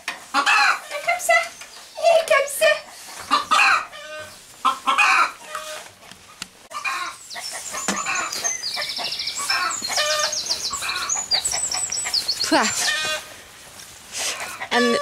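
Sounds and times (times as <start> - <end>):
chickens clucking: 0.0 - 13.4, 14.1 - 15.0
bird chirping and trilling: 6.7 - 13.2.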